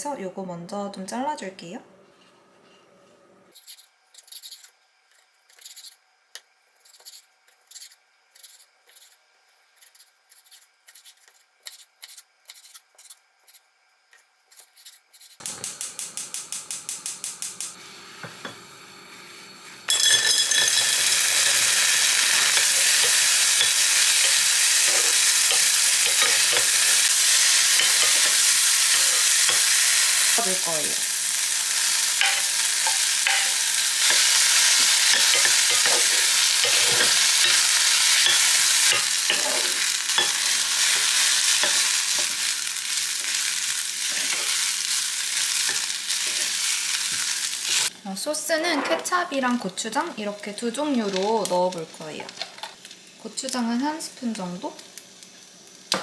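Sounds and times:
gas stove igniter clicks: 15.4s - 17.8s
vegetables sizzling in a pan: 15.5s - 56.0s.

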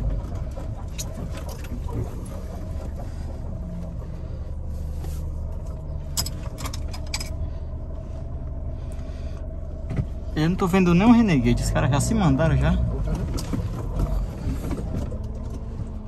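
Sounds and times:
car engine low rumble: 0.0s - 16.0s.

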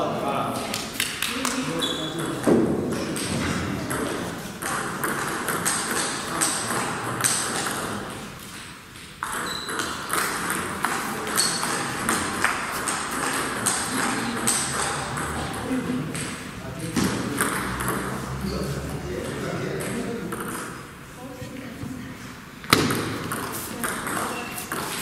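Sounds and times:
hall background noise: 0.0s - 25.0s
table tennis ball clicking: 3.1s - 7.9s.

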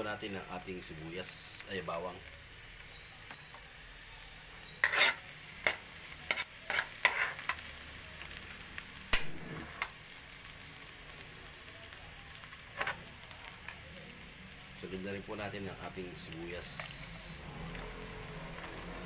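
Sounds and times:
garlic sizzling in oil: 0.0s - 19.0s
metal ladle scraping a wok: 4.6s - 7.6s, 12.7s - 13.0s.

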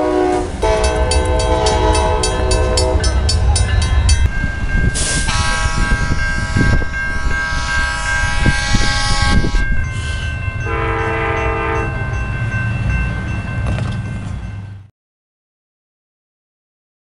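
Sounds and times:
locomotive horn blowing: 0.0s - 3.3s, 5.0s - 9.8s, 10.6s - 12.1s
passing train rumbling and knocking: 0.0s - 14.9s
crossing bell ringing: 0.4s - 14.9s.

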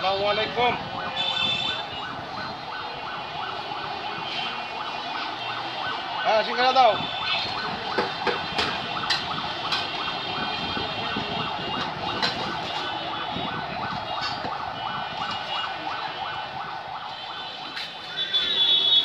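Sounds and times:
busy background noise: 0.0s - 19.0s
pulsing siren-like electronic tone: 7.0s - 19.0s.

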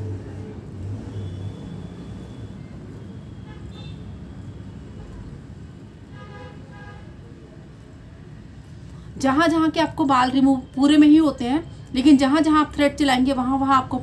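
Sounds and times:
road traffic rumbling: 0.0s - 14.0s.

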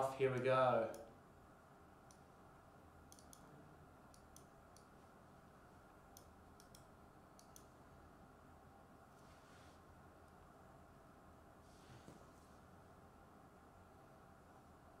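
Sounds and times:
faint computer mouse clicks: 3.1s - 3.5s, 6.2s - 7.7s.

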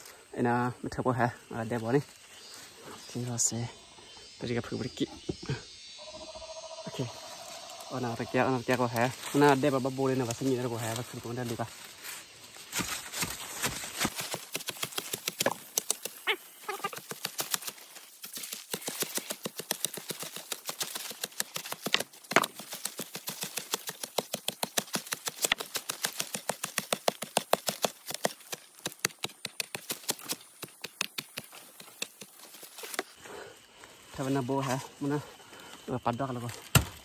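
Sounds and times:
digging tool chopping into earth: 12.7s - 16.2s, 17.1s - 33.0s, 36.6s - 37.0s.

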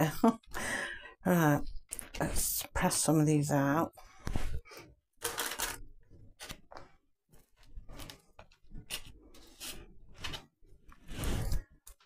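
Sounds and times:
dough rustling and scraping: 6.1s - 12.0s.

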